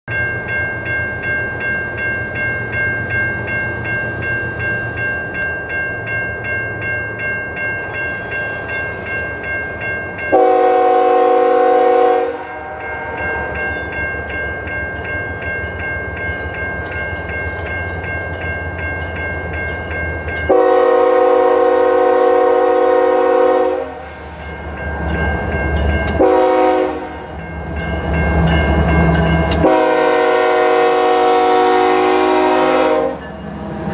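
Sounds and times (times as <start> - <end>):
crossing bell ringing: 0.1 - 33.9
locomotive air horn blasts: 10.3 - 13.1, 20.5 - 24.5, 26.1 - 27.3, 29.5 - 33.2.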